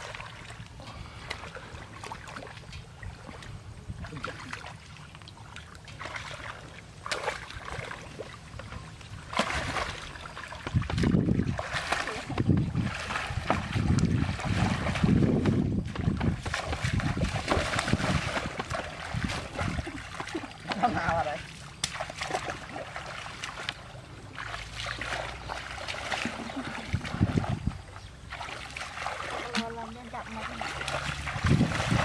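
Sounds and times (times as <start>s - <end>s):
splashing in muddy water: 0.0s - 32.0s
water pump engine hum: 0.0s - 32.0s
wind buffeting microphone: 9.2s - 20.4s, 26.5s - 28.2s, 31.0s - 32.0s.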